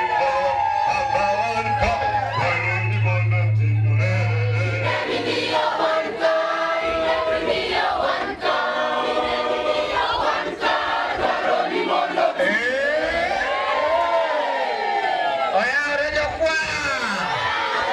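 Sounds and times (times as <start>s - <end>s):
crowd noise: 0.0s - 17.9s
choir singing a hymn: 4.0s - 12.5s.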